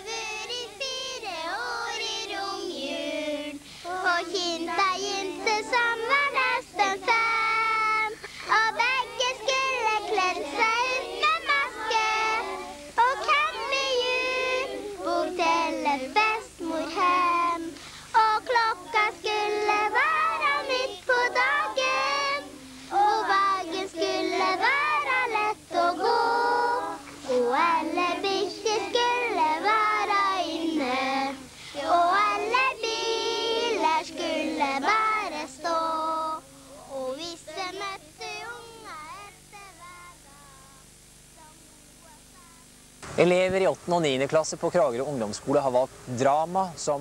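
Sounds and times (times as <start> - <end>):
young child singing: 0.0 - 42.8.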